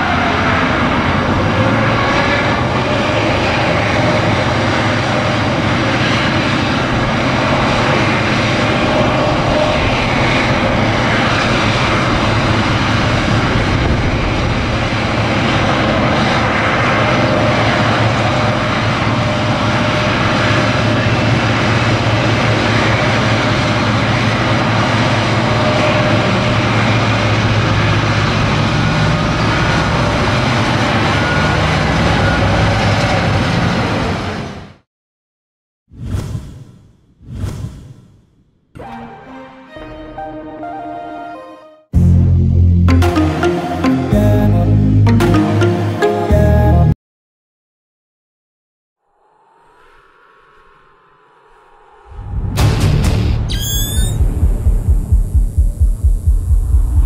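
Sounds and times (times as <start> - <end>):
truck diesel engine running: 42.0 - 46.9, 52.4 - 57.0.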